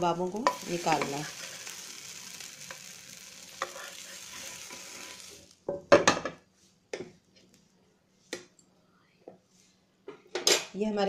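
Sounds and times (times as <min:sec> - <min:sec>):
oil sizzling in frying pan: 0:00.0 - 0:06.3.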